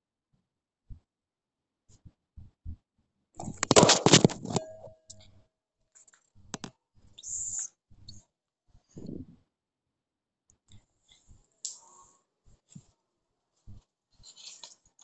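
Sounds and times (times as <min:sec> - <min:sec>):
paper rustling and clicks: 0:03.4 - 0:04.6
clattering and rustling: 0:03.4 - 0:04.8.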